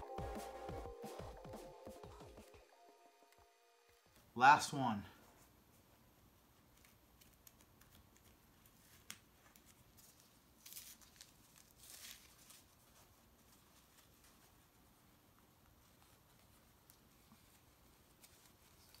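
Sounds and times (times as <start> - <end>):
wrapping crinkling and rustling: 6.5 - 19.0.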